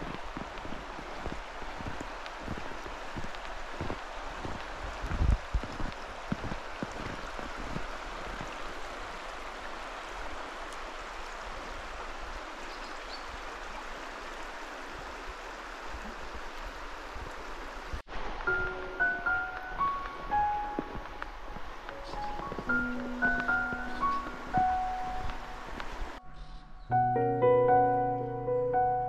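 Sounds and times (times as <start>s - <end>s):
stream water rushing: 0.0s - 26.6s.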